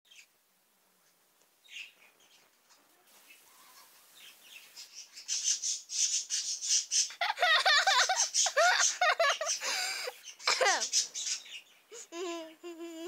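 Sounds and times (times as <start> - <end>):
high-pitched giggling: 7.2 - 11.0, 12.0 - 13.0.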